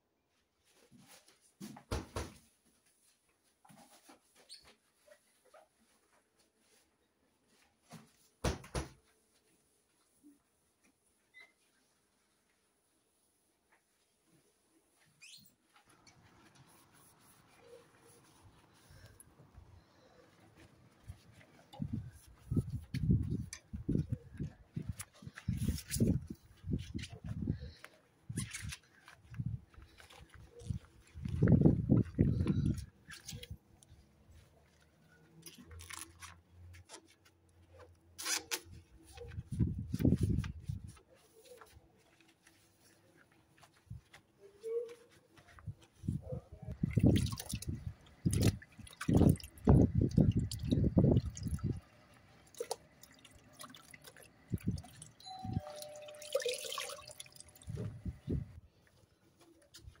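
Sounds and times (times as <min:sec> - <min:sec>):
sponge scrubbing window frame: 0:16.2 - 0:19.0
sponge cloth being wrung out: 0:46.8 - 0:58.2
water dripping into bucket: 0:46.9 - 0:57.8.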